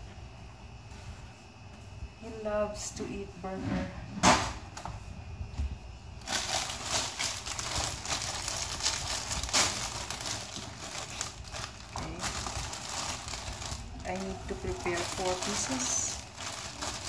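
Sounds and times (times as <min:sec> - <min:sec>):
plastic bag crinkling: 0:06.2 - 0:17.0.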